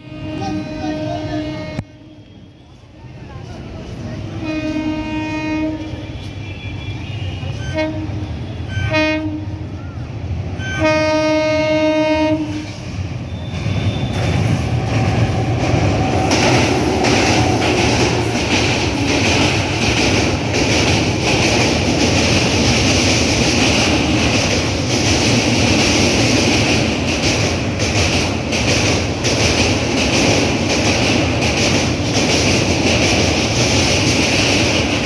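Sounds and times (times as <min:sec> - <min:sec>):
locomotive horn blast: 0:00.0 - 0:02.4, 0:04.4 - 0:09.8, 0:10.6 - 0:14.2
train passing with rumble: 0:00.0 - 0:35.0.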